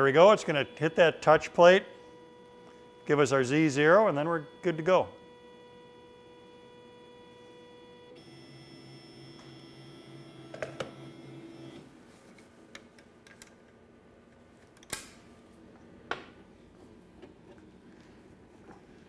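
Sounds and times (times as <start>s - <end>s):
stepper motors whining: 0.0s - 11.8s.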